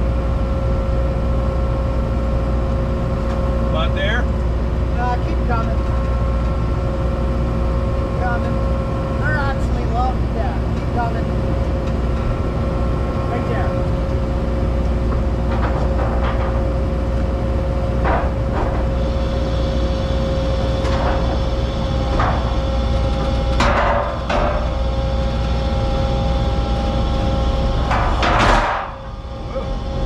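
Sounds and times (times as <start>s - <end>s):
metal clanks and knocks: 15.1s - 16.8s, 23.6s - 24.8s, 27.8s - 29.1s.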